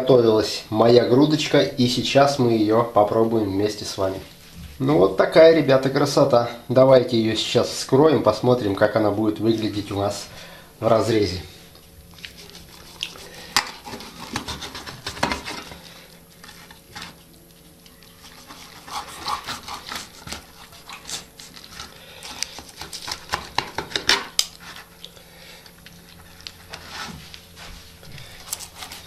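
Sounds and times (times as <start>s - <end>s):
knife and fork scraping metal tray: 12.4s - 15.7s, 18.2s - 21.6s.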